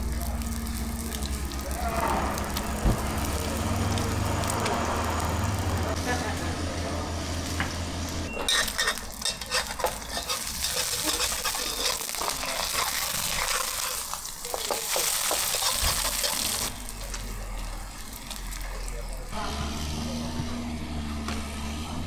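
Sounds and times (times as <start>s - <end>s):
food sizzling in a hot pan: 0.0s - 6.4s, 8.5s - 19.3s
metal utensil scraping a pan: 8.4s - 17.2s.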